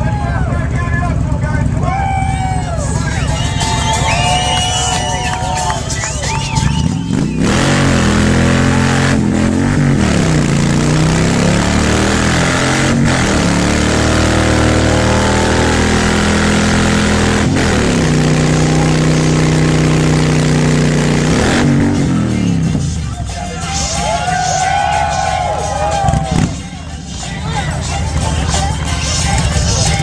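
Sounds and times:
motorcycle engine revving: 6.5 - 23.3, 25.9 - 30.0.

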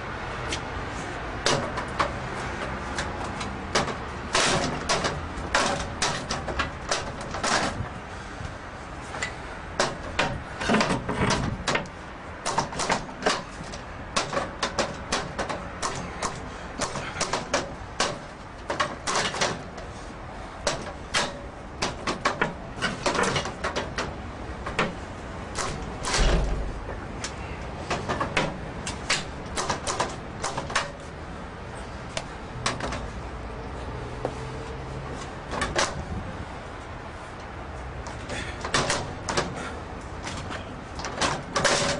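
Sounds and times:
pry bar clanking on metal gate: 25.6 - 26.9.

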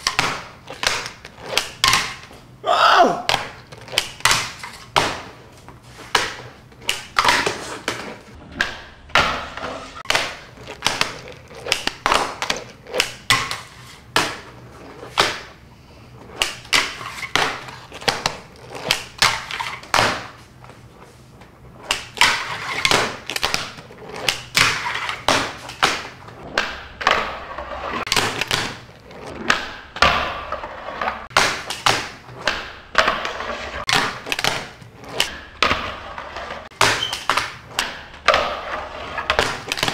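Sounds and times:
wheels rolling and grinding: 5.8 - 20.0, 20.8 - 31.3, 32.2 - 39.9
skateboard deck clacking: 6.0 - 15.6, 21.9 - 39.9.

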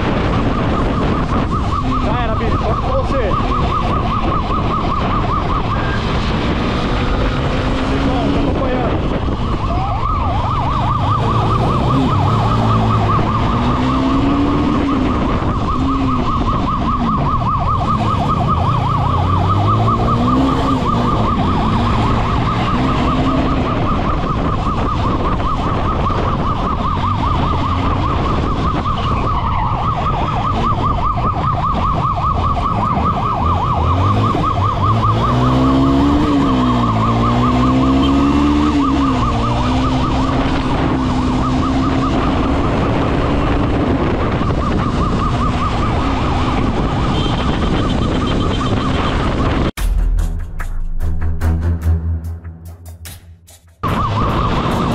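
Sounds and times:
siren warbling: 0.0 - 49.7, 53.8 - 54.9
wind noise: 0.0 - 51.6, 53.8 - 54.9
motorcycle engine revving: 3.4 - 29.0, 32.4 - 49.7.

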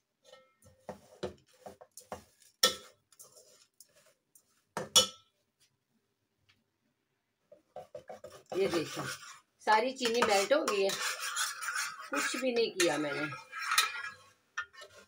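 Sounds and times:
metal spatula scraping a pot: 0.2 - 5.1, 7.8 - 15.0
spatula clanking on pot: 2.2 - 3.0, 10.0 - 15.0.

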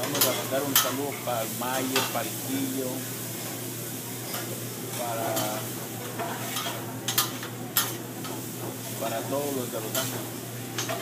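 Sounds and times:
steady hiss: 0.4 - 3.9.

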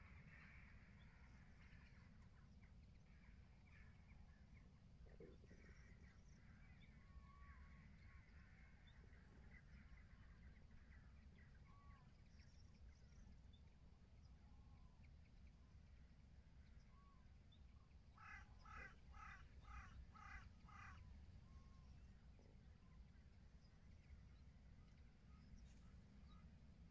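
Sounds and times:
cranes calling: 18.2 - 21.7.

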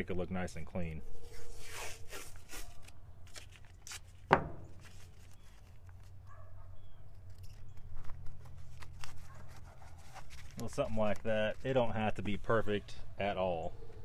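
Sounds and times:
tape crackling and clicking: 2.2 - 12.4.

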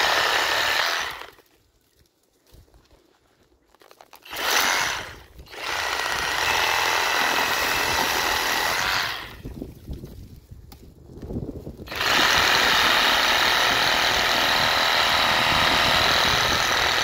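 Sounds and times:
reciprocating saw cutting branch: 0.0 - 1.4, 4.2 - 9.4, 11.9 - 17.0.

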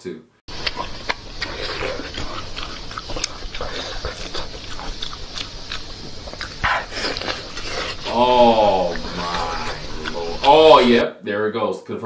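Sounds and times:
wet chewing and lip-smacking: 0.5 - 8.1.

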